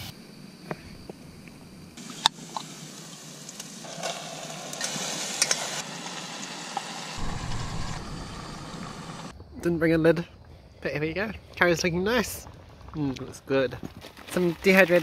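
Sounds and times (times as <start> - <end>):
curry sizzling in a pot: 2.7 - 7.2.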